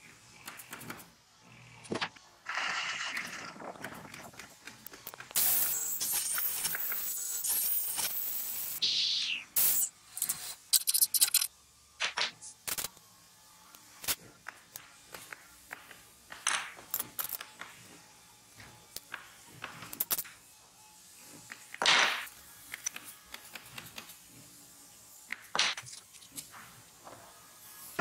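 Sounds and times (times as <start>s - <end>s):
tools scraping: 10.1s - 11.5s.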